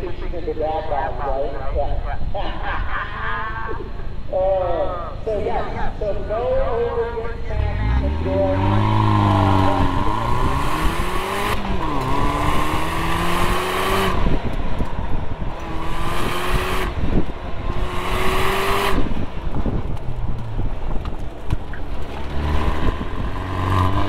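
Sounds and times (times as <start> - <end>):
car engine revving hard: 7.6 - 14.6, 15.6 - 19.3, 22.1 - 24.0.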